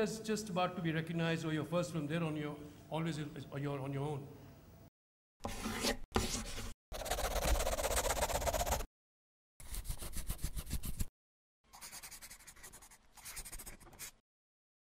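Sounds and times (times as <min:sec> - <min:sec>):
pen scribbling on paper: 0:07.0 - 0:08.9, 0:09.6 - 0:11.1, 0:11.7 - 0:14.2.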